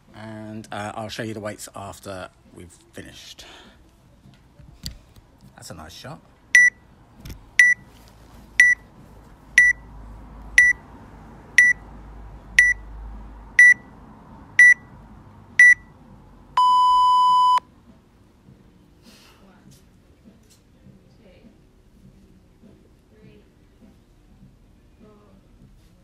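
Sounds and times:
countdown timer beeps: 0:06.6 - 0:06.8, 0:09.6 - 0:09.8, 0:11.6 - 0:11.8, 0:12.6 - 0:12.8, 0:13.6 - 0:13.8, 0:14.6 - 0:14.9, 0:15.6 - 0:15.9
long low timer beep: 0:09.6 - 0:09.8, 0:11.6 - 0:11.8, 0:12.6 - 0:12.8, 0:13.6 - 0:13.8, 0:14.6 - 0:14.9, 0:15.6 - 0:15.9, 0:16.6 - 0:17.6.

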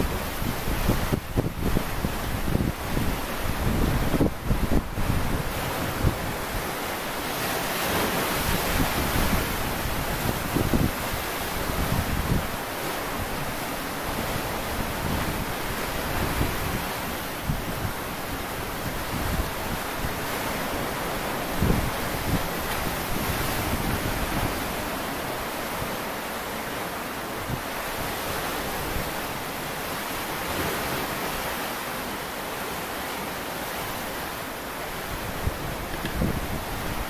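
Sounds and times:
wind buffeting microphone: 0:00.0 - 0:26.1, 0:34.9 - 0:37.0.

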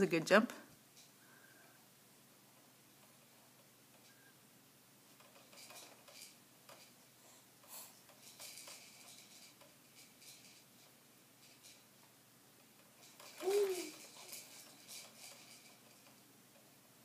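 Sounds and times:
plastic baby bouncer rattling: 0:05.1 - 0:07.0, 0:08.1 - 0:11.9, 0:12.6 - 0:16.2.

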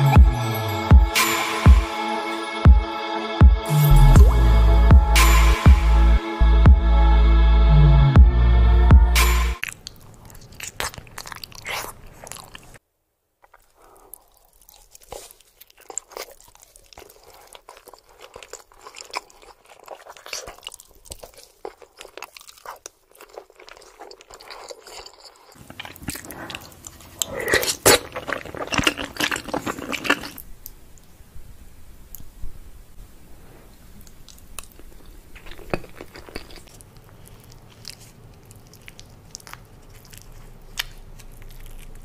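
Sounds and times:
person chewing food: 0:09.6 - 0:12.8, 0:13.4 - 0:31.1, 0:33.8 - 0:42.0.

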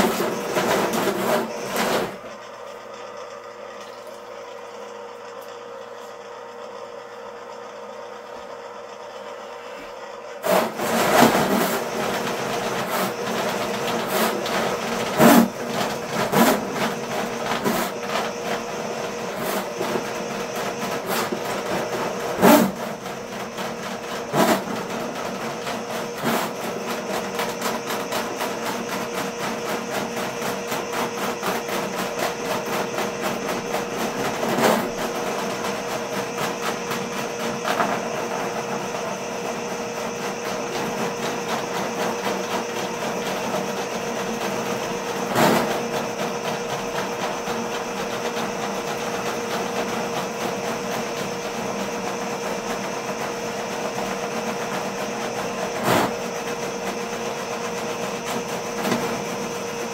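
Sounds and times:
drain machine running: 0:00.0 - 0:59.9
spinning cable rattling and knocking: 0:10.5 - 0:38.4.

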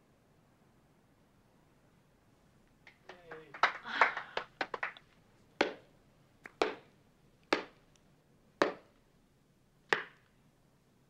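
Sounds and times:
hand claps: 0:02.8 - 0:06.9, 0:07.5 - 0:07.8, 0:09.9 - 0:10.3.

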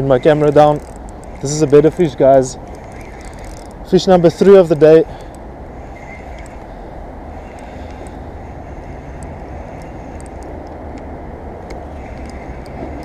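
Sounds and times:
spinning reel ticking: 0:00.0 - 0:06.8, 0:07.4 - 0:10.6
low outdoor rumble: 0:00.0 - 0:13.0.

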